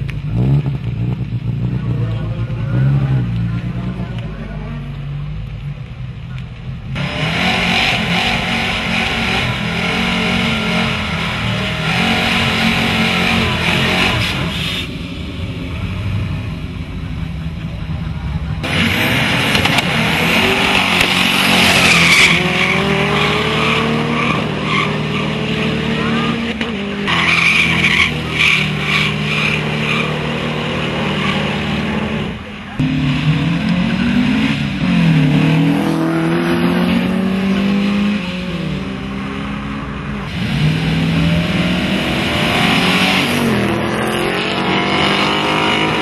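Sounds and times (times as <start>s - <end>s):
car engines revving: 0.0s - 46.0s
tyres squealing: 18.7s - 32.2s.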